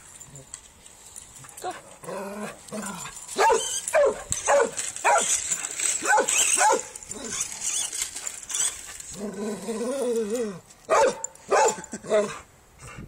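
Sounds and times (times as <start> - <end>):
dog barking: 10.9 - 11.8.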